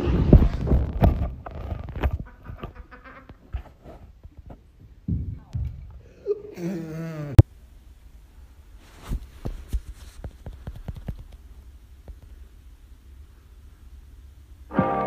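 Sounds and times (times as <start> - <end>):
person's wavering vocal sound: 6.0 - 7.4.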